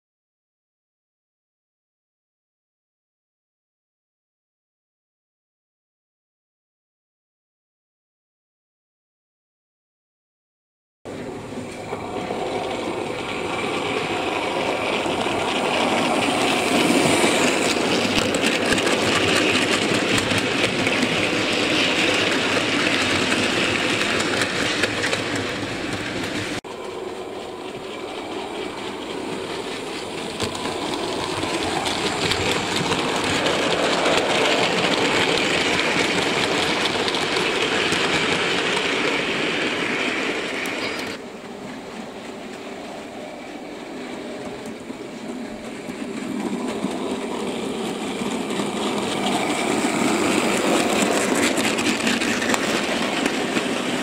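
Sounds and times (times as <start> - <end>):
model train rolling on track: 11.1 - 54.0.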